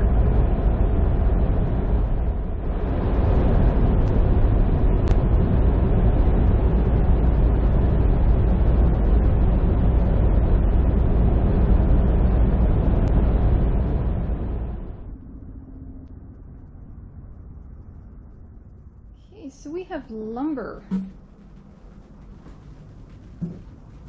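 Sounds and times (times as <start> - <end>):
truck engine and tyres rumbling: 20.9 - 24.0.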